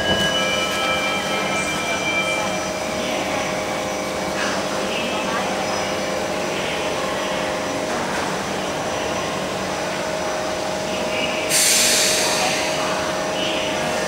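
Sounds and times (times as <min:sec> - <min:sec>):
train interior hum and rumble: 0:00.0 - 0:14.0.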